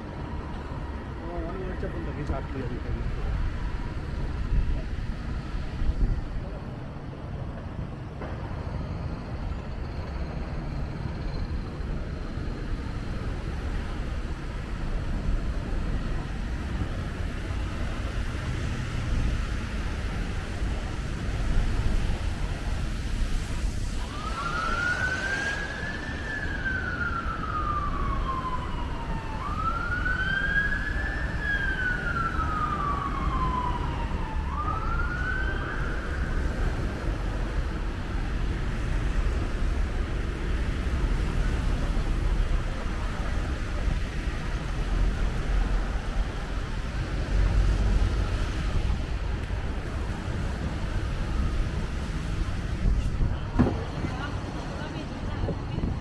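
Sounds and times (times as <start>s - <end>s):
rumble of city traffic: 0.0s - 56.0s
siren wailing: 23.9s - 37.2s.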